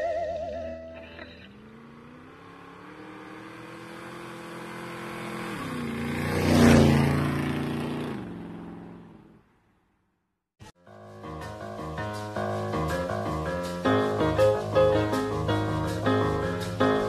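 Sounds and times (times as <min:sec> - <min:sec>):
car engine revving: 0:01.0 - 0:09.4.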